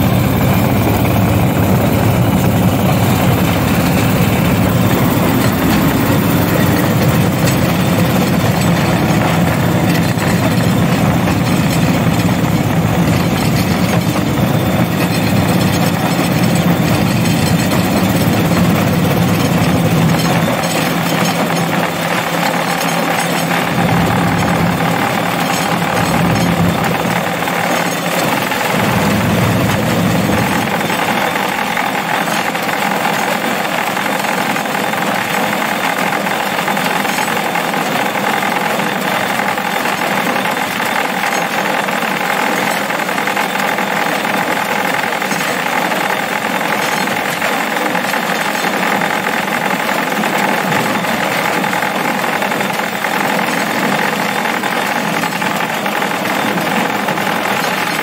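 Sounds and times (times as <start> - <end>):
rail cart clattering on track: 0.0 - 58.0
deep rumble: 23.6 - 31.6.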